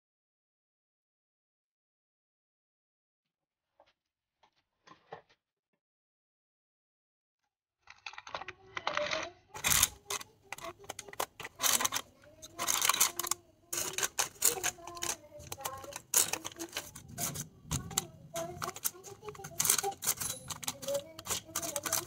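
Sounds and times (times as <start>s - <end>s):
parchment paper crinkling: 7.8s - 22.0s
chopsticks clicking on bread rolls: 9.0s - 22.0s.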